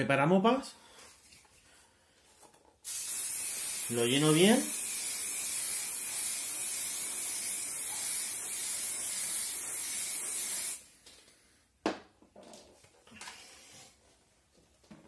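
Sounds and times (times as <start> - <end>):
aerosol spray hissing: 2.8 - 10.8.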